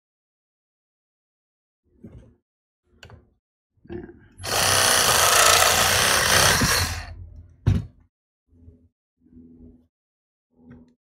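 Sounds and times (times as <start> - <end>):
reciprocating saw cutting pipe: 4.4 - 7.2.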